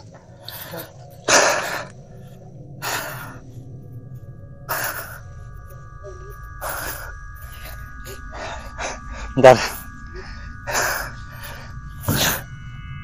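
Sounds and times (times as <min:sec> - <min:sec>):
faint steady high tone: 0:00.0 - 0:13.0
person breathing hard: 0:00.5 - 0:03.5, 0:04.7 - 0:05.3, 0:06.1 - 0:12.4.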